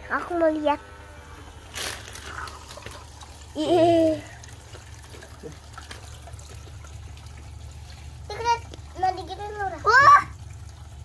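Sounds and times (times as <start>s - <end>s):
aquarium water trickling: 0.0s - 11.0s
steady low hum: 0.0s - 11.0s.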